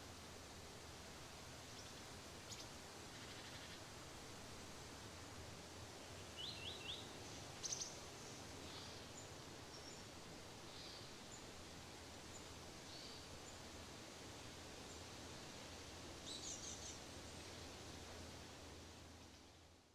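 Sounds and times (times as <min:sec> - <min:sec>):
faint outdoor hiss: 0:00.0 - 0:19.9
small birds chirping: 0:01.7 - 0:03.8, 0:06.0 - 0:11.5, 0:16.2 - 0:17.6.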